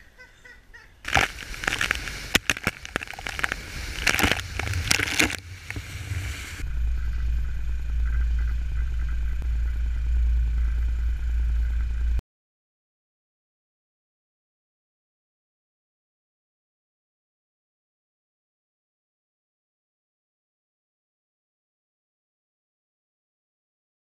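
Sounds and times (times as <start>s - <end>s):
droplets hitting lens: 1.1s - 6.6s
water splashing over camera: 1.1s - 6.6s
low engine hum: 1.1s - 12.2s.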